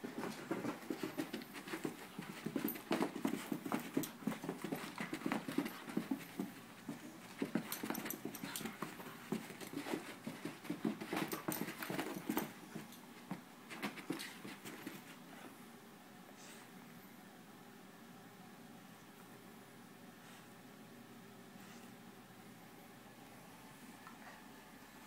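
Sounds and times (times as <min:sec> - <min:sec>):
paws pattering on carpet: 0:00.0 - 0:15.6.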